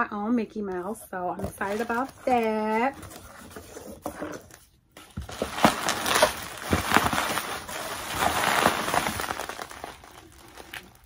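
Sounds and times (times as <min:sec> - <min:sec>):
bubble wrap crinkling: 0:01.4 - 0:03.9, 0:05.0 - 0:11.0.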